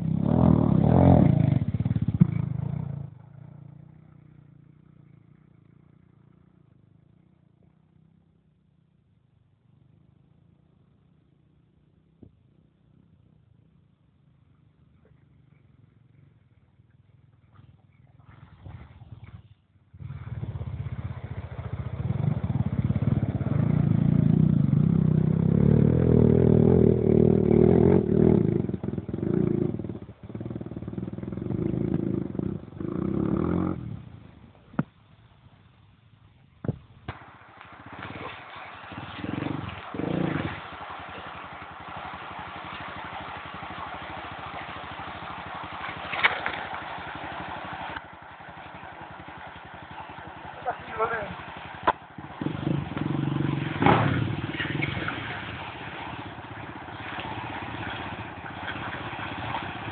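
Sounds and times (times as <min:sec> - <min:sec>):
quad bike engine revving: 0:00.0 - 0:07.1, 0:19.9 - 0:34.3, 0:37.1 - 0:59.9
vehicle ploughing through water: 0:00.0 - 0:08.3, 0:14.1 - 0:59.9
short sharp bang: 0:53.8 - 0:54.3.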